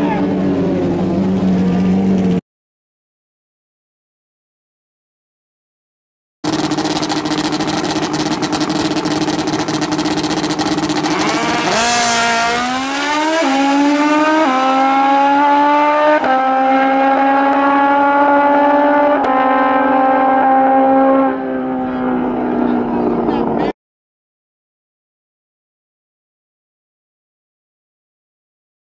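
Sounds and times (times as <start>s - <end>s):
motorcycle engines revving: 0.0s - 2.4s, 6.4s - 23.8s.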